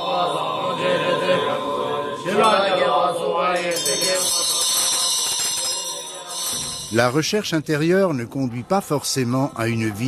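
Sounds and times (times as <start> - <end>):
voices chanting together: 0.0 - 6.9.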